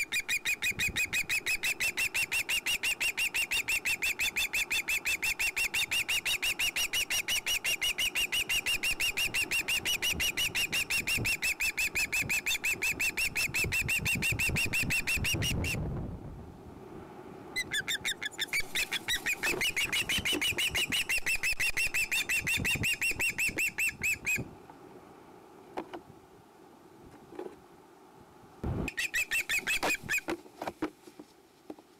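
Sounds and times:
young osprey squealing: 0.0 - 15.8, 17.6 - 24.5, 28.9 - 30.3.

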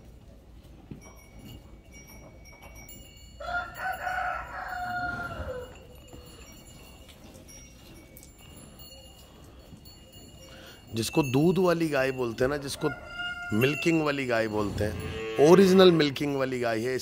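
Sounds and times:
rooster crowing: 3.4 - 5.7, 12.7 - 14.0.

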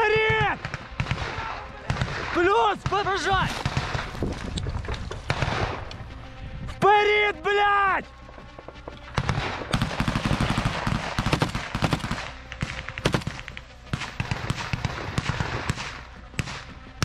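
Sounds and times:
automatic gunfire: 5.2 - 5.8, 9.2 - 16.6.

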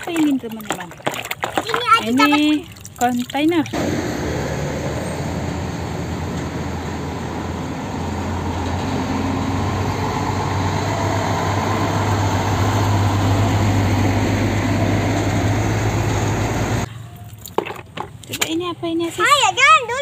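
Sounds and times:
road noise: 0.0 - 20.0
diesel truck engine hum: 3.8 - 17.2.

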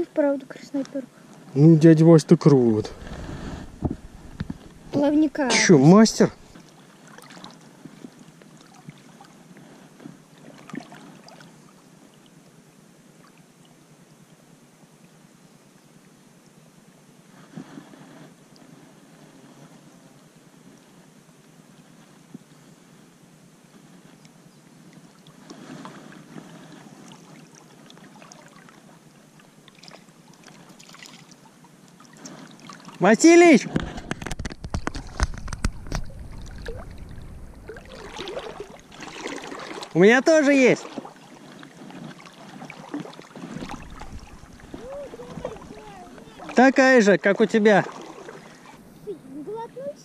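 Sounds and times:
soft outdoor hiss: 0.0 - 50.0
river water lapping: 2.4 - 12.4, 23.7 - 50.0
small scattered ticks and clicks: 33.8 - 36.6.

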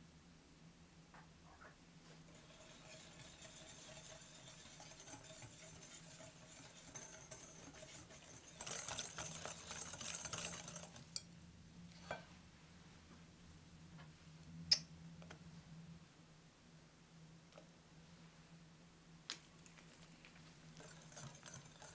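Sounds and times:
whisk stirring in glass bowl: 2.2 - 11.2, 20.7 - 21.9
whisk clicking against glass: 2.3 - 11.2.

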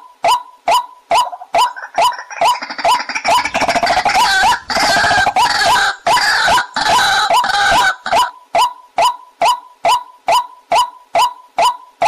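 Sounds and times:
birds croaking: 1.2 - 8.8.

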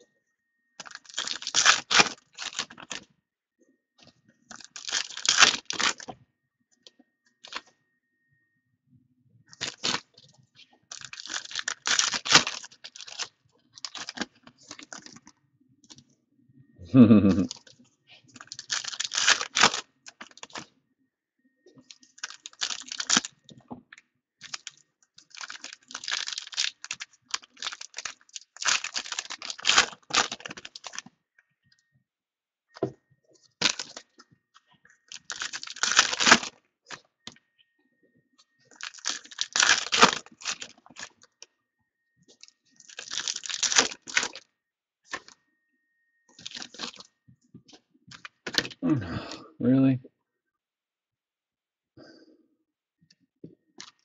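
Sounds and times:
foil wrappers tearing and crinkling: 0.8 - 3.0, 4.5 - 6.1, 9.6 - 10.2, 10.9 - 15.2, 18.4 - 20.7, 21.9 - 23.4, 24.4 - 31.1, 33.6 - 34.1, 35.1 - 36.6, 38.7 - 41.2, 42.8 - 44.4, 46.4 - 47.1, 48.1 - 48.8.

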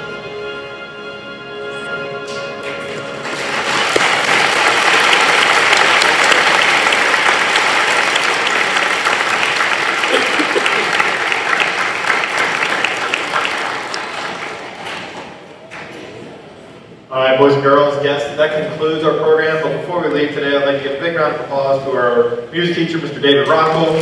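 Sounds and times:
audience clapping: 2.6 - 16.0.

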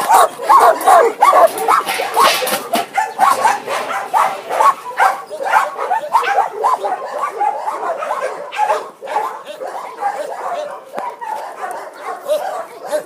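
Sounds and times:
many dogs barking and yelping: 0.0 - 13.0.

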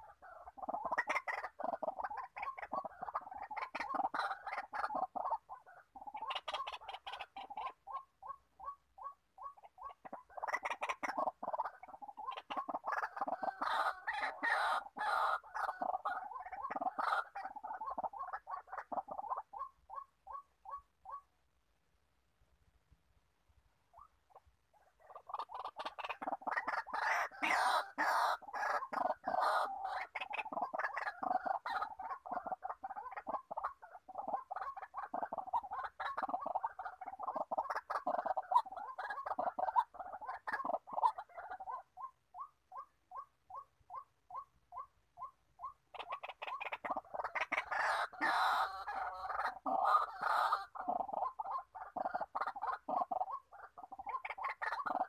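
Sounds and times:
waterhen harsh croaking calls: 0.0 - 21.3, 23.9 - 55.0.

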